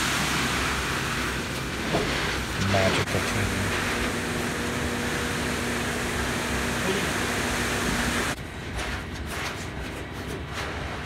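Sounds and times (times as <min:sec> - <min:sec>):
concrete mixer truck running: 0:00.0 - 0:08.8.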